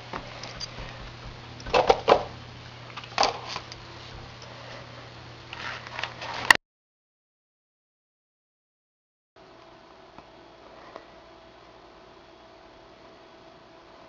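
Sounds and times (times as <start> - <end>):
steady low hum: 0.0 - 6.6, 9.4 - 14.0.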